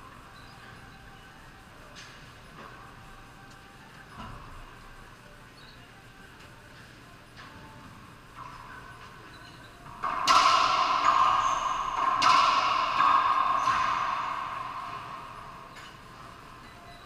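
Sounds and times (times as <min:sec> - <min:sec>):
racquetball cracking off walls: 0:10.0 - 0:16.4.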